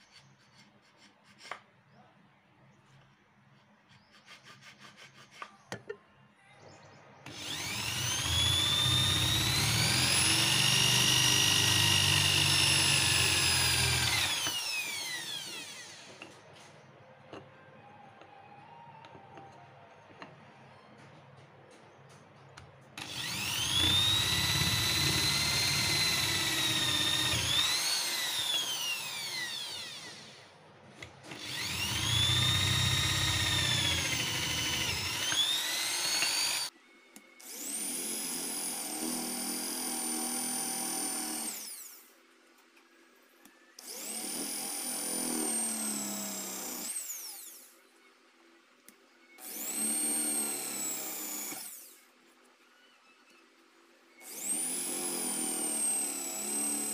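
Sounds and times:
electric drill boring into wood: 0:07.3 - 0:16.3, 0:23.0 - 0:30.5, 0:31.3 - 0:36.8, 0:37.4 - 0:42.1, 0:43.8 - 0:47.8, 0:49.4 - 0:52.0, 0:54.2 - 0:56.9.

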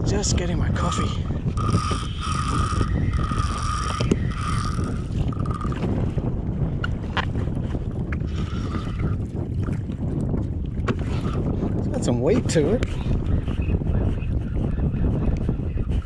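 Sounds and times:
wind rumble on microphone: 0:00.0 - 0:16.0
fishing reel whirring: 0:01.0 - 0:06.0, 0:08.3 - 0:09.2.

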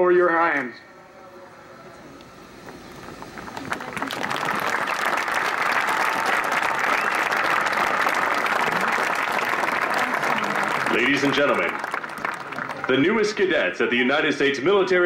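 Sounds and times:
crowd applauding: 0:02.6 - 0:13.7.

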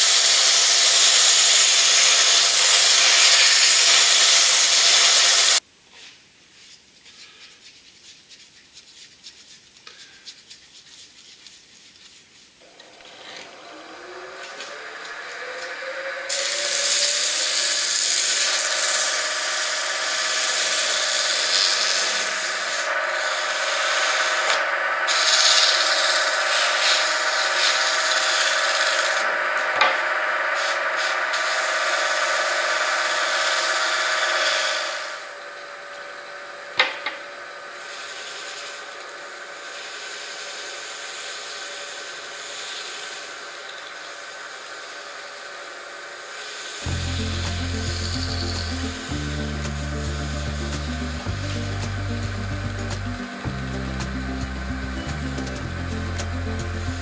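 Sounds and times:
lathe motor whine: 0:00.0 - 0:05.6, 0:12.6 - 0:57.0
rotary sanding disc on wood: 0:00.0 - 0:05.6, 0:16.3 - 0:35.3, 0:37.8 - 0:44.1
wet sanding: 0:06.6 - 0:12.6, 0:16.3 - 0:24.3.

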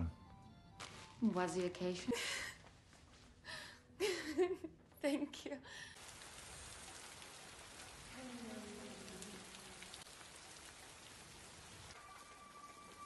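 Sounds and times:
heavy rain falling: 0:06.0 - 0:13.0.

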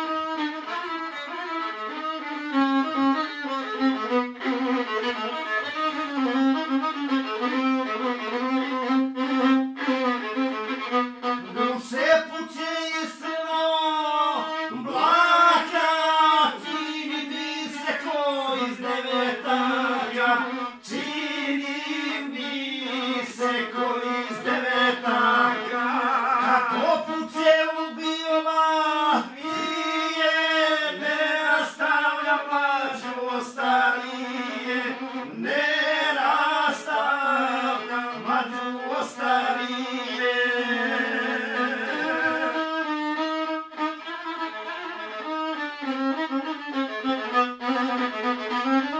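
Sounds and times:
violin accompaniment: 0:00.0 - 0:48.9
man singing folk song: 0:11.6 - 0:42.8.

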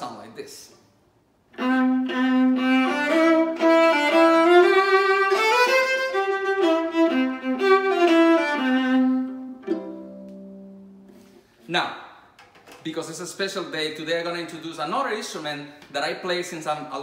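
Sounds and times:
viola bowed melody: 0:01.5 - 0:11.4.

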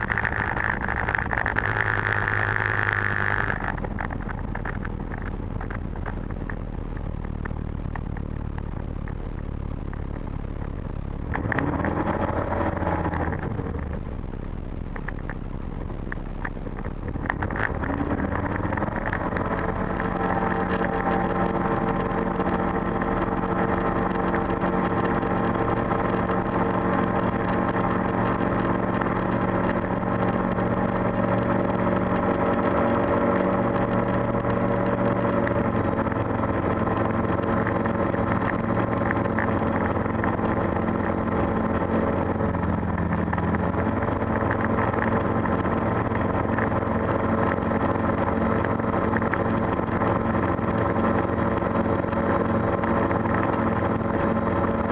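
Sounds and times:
aircraft engine and propeller running: 0:00.0 - 0:54.9.

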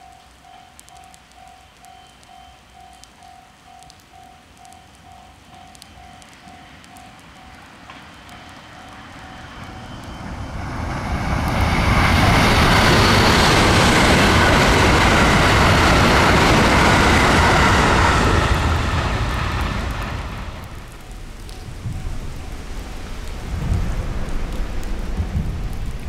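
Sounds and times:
level-crossing warning bell: 0:00.0 - 0:18.6
electric train passing: 0:00.0 - 0:26.0.

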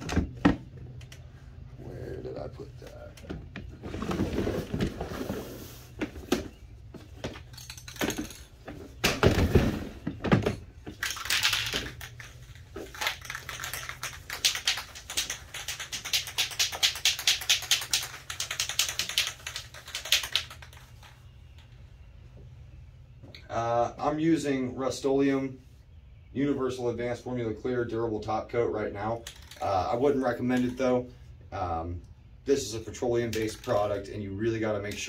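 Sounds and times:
fast clicking rattle: 0:13.0 - 0:21.1.

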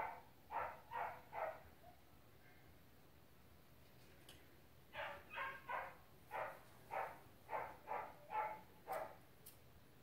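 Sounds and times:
dog barking: 0:00.0 - 0:01.7, 0:05.0 - 0:09.2.

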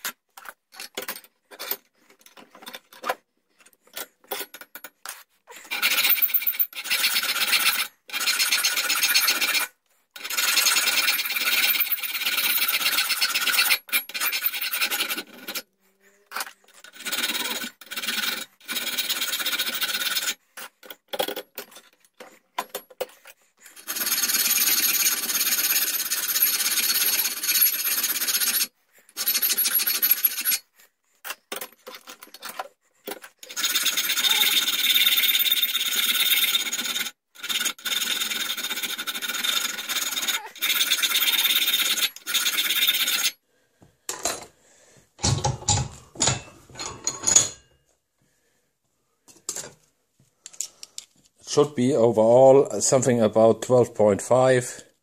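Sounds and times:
hand file filing metal: 0:04.4 - 0:22.4, 0:23.0 - 0:32.1, 0:33.0 - 0:43.4.

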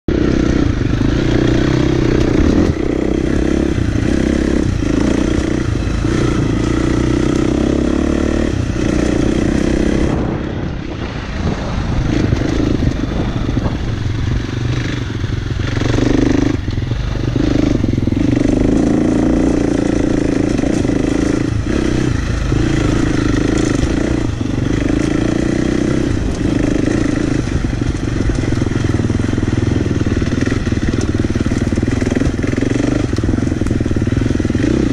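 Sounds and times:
dirt bike engine revving: 0:00.1 - 0:34.9.

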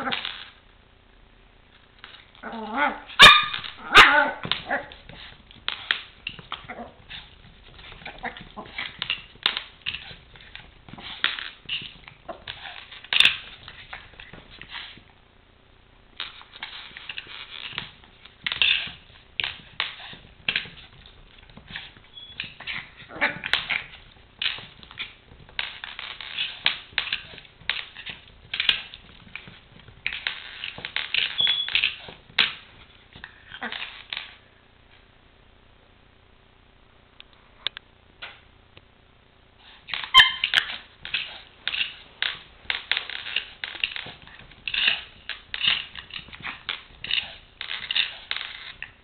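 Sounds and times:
toy car clattering on tiles: 0:39.9 - 0:49.0.

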